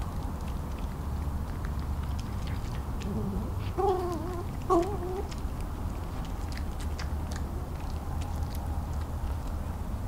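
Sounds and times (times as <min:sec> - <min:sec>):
fox whining: 0:02.2 - 0:08.6.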